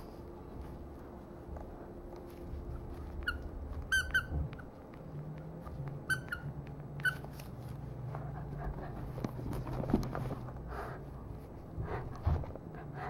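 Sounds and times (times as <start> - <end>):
dog toy squeaking: 3.0 - 4.7, 6.0 - 7.4.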